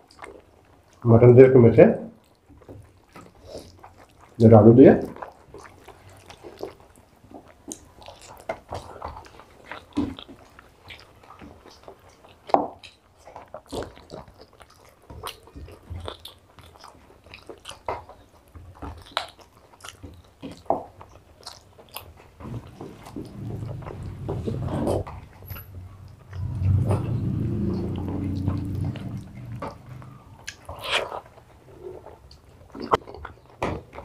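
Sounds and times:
chewing and mouth noises: 0.0 - 1.5, 2.1 - 34.0
fingers squelching food: 7.4 - 33.0.

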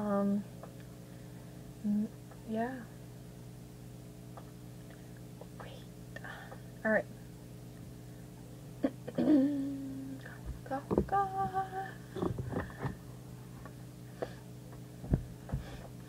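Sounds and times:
steady low hum: 0.0 - 16.0
girl humming: 1.8 - 2.2, 8.8 - 10.4, 11.1 - 12.4.

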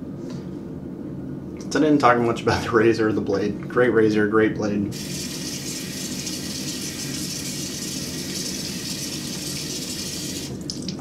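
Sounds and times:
faucet running into sink: 4.9 - 11.0.

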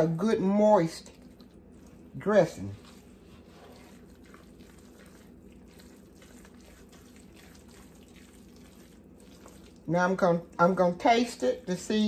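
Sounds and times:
low steady hum: 0.0 - 12.0
wet squishing of stirred food: 0.0 - 12.0
spoon stirring in metal pan: 1.1 - 9.8.

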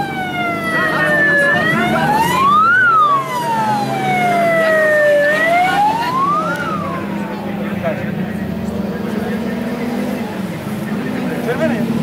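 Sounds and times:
wailing siren: 0.0 - 7.6
motorcycle engines rolling past: 0.0 - 12.0.

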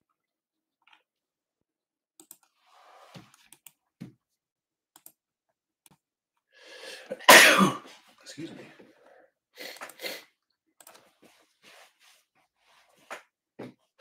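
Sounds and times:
soft rustle of handling: 10.9 - 13.1.

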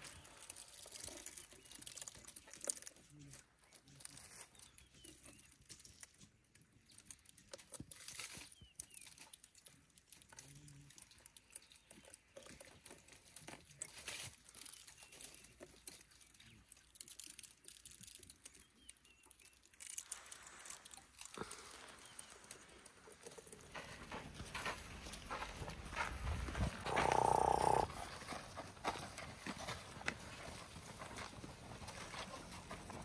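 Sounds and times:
twigs crackling and snapping: 0.0 - 25.7.

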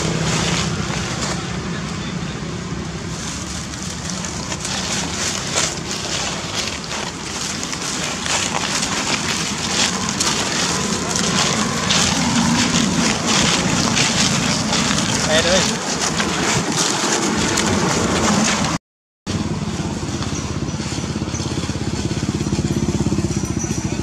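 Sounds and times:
footsteps crunching dry leaves: 0.0 - 23.6
wind rumble on microphone: 0.0 - 24.0.

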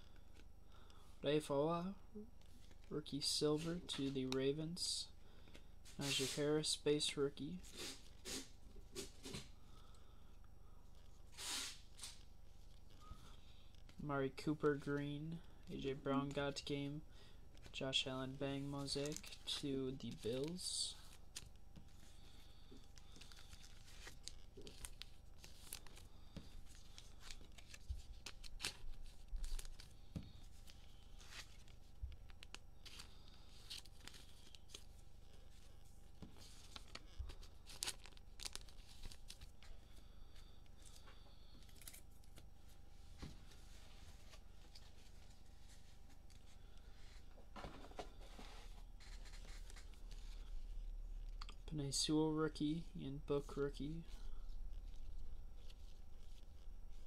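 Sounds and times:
cards being handled: 17.5 - 51.6, 53.4 - 57.0
wrappers tearing and crinkling: 18.7 - 21.6, 22.9 - 30.0, 36.5 - 39.6.

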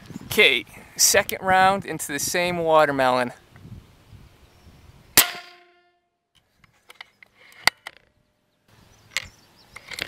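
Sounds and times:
air rifle shot ringing: 5.2 - 5.8.

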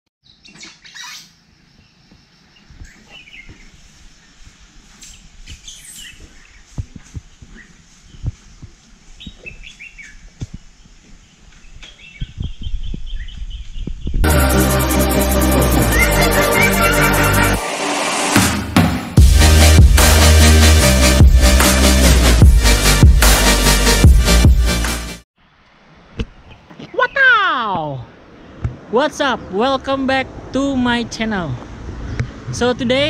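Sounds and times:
birds chirping and calling: 0.2 - 4.4, 5.0 - 14.2
electronic music: 14.2 - 25.2
low thumps: 18.4 - 24.9.

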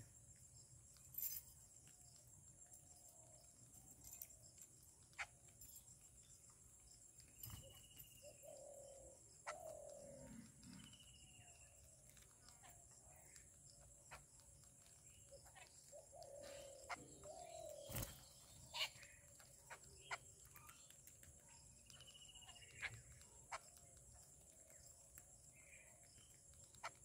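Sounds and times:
birds pecking on concrete: 0.0 - 27.0
faint bird calls: 5.0 - 5.8, 7.2 - 27.0
bird trill: 7.1 - 27.0.

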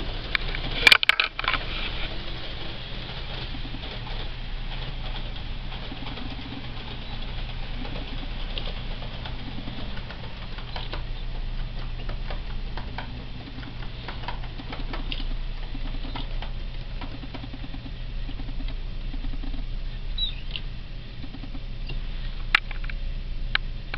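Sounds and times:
model train rattling on track: 0.0 - 20.4
steady low hum: 0.0 - 23.9.

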